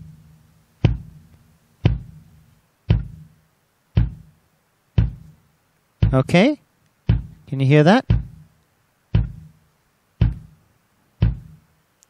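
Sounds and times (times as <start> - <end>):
kick drum hits: 0.8 - 1.2, 1.8 - 2.3, 2.9 - 3.4, 4.0 - 4.4, 5.0 - 5.4, 6.0 - 6.4, 7.0 - 8.5, 9.1 - 9.6, 10.2 - 10.6, 11.2 - 11.6.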